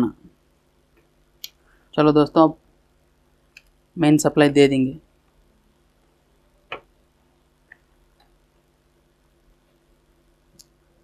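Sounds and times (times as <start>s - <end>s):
faint low electrical hum: 0.0s - 11.0s.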